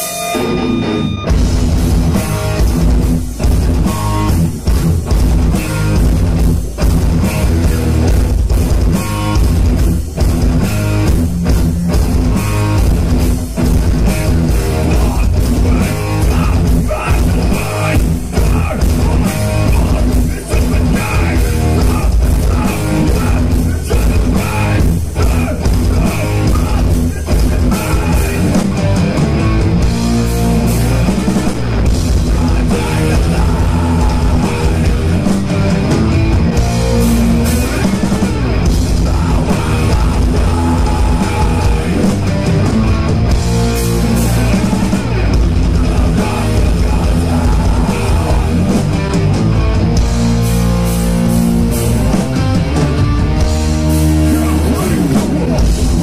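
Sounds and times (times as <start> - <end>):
bass guitar: 0.0 - 56.0
drum kit: 0.0 - 56.0
electric guitars: 0.0 - 56.0.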